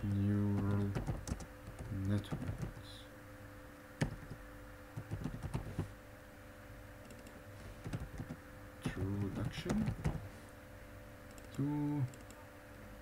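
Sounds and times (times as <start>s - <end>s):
faint steady hum: 0.0s - 13.0s
computer keyboard keystrokes: 0.5s - 2.8s, 4.0s - 4.4s, 5.0s - 5.9s, 7.0s - 8.4s, 9.0s - 10.2s.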